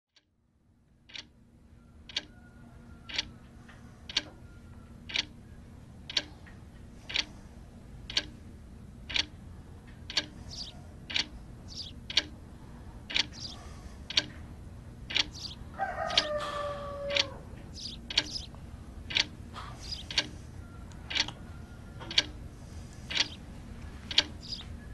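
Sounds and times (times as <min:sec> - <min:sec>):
low steady hum: 0:00.2 - 0:24.9
clock ticking: 0:01.1 - 0:01.3, 0:02.1 - 0:02.3, 0:03.1 - 0:03.3, 0:04.1 - 0:04.3, 0:05.1 - 0:05.4, 0:06.1 - 0:06.3, 0:07.1 - 0:07.3, 0:08.1 - 0:08.4, 0:09.0 - 0:09.4, 0:10.1 - 0:12.4, 0:13.1 - 0:14.4, 0:15.1 - 0:16.3, 0:17.1 - 0:20.4, 0:21.1 - 0:21.4, 0:22.1 - 0:22.4, 0:23.1 - 0:23.4, 0:24.1 - 0:24.6.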